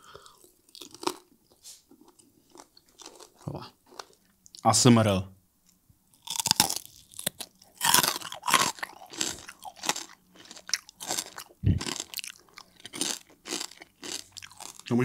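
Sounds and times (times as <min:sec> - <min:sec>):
crunching crispy pork skin: 0:06.2 - 0:15.0.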